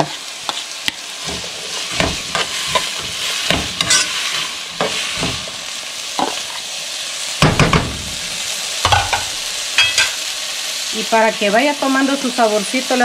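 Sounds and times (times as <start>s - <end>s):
food sizzling in oil: 0.0s - 13.0s
spoon scraping and knocking a pot: 1.3s - 4.2s.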